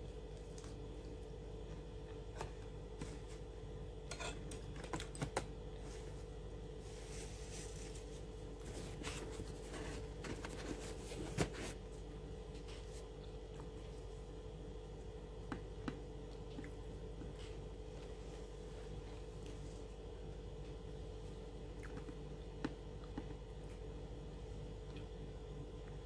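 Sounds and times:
bread wrapping crackling: 0:05.8 - 0:11.8
wrapping rustling: 0:05.8 - 0:11.8.

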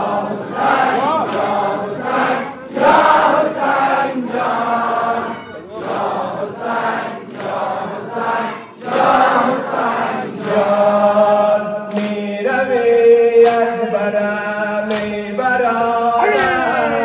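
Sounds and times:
men chanting a lament: 0:00.0 - 0:17.0
chest-beating strikes: 0:16.2 - 0:17.0.

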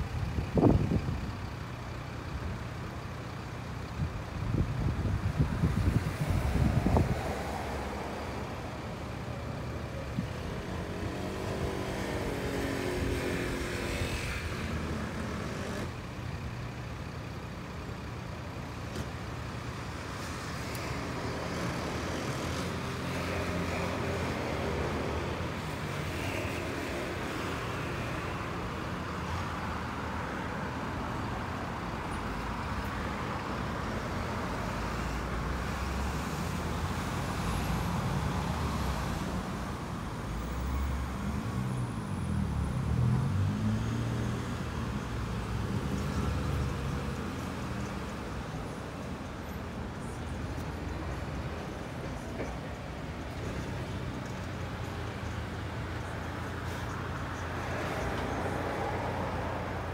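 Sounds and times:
vehicle engines idling: 0:00.0 - 0:13.6, 0:14.6 - 0:26.1
vehicle revving and pulling away: 0:04.8 - 0:18.1, 0:31.8 - 0:50.7.

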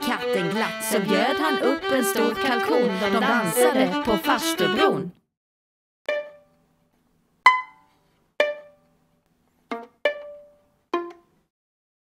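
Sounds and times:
violin plucked pizzicato: 0:00.0 - 0:05.2, 0:06.1 - 0:06.6, 0:07.4 - 0:09.0, 0:09.6 - 0:11.5.

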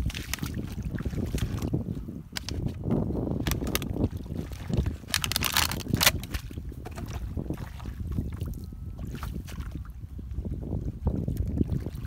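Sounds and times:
muddy water splashing: 0:00.0 - 0:02.7, 0:03.4 - 0:10.0
wind rumble on microphone: 0:00.0 - 0:12.0.

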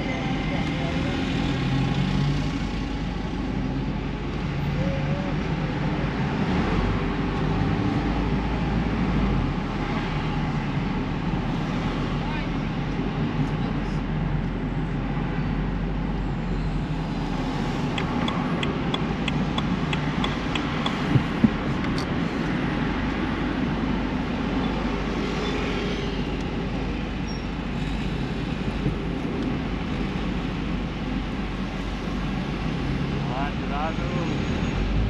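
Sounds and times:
road and traffic noise: 0:00.0 - 0:35.0
quick even ticks: 0:18.0 - 0:21.3.

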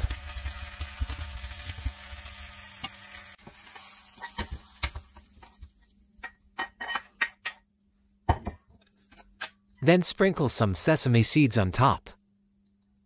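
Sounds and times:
chicken wings sizzling in pan: 0:00.0 - 0:06.0.

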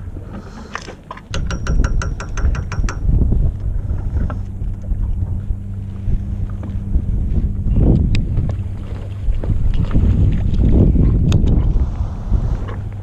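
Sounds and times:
boat engine humming: 0:00.0 - 0:13.0
wind on microphone: 0:00.0 - 0:13.0.

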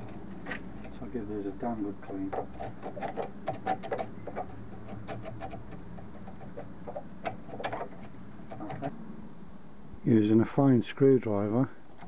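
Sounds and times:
screwdriver scraping metal: 0:01.7 - 0:08.9.

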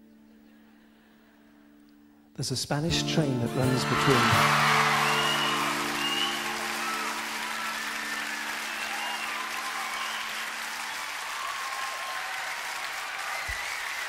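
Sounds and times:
audience applauding: 0:03.6 - 0:14.0
audience cheering: 0:03.6 - 0:14.0.

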